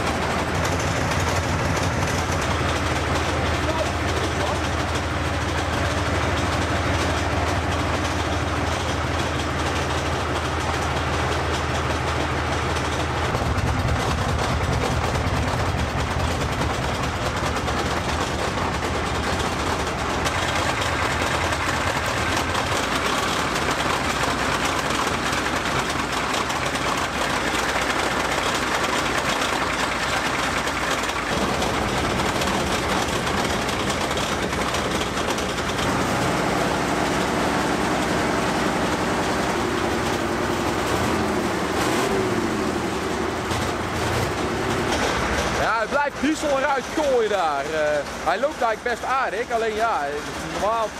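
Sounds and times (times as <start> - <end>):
diesel tank engine running unevenly: 0.0 - 50.9.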